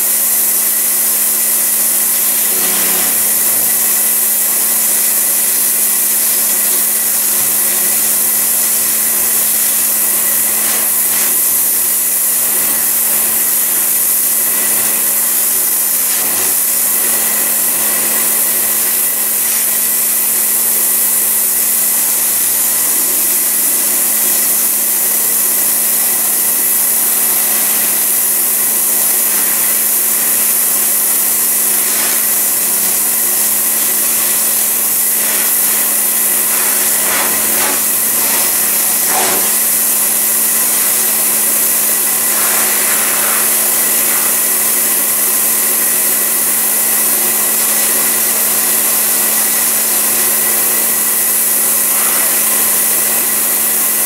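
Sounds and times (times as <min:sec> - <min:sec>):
pressure washer water jet hiss: 0:00.0 - 0:54.0
motor hum: 0:27.0 - 0:46.5.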